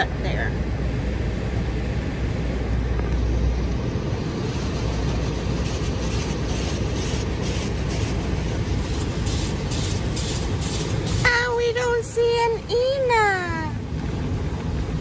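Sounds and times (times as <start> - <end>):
car wash water spray and machinery: 0.0 - 15.0
rhythmic swishing: 4.0 - 11.6.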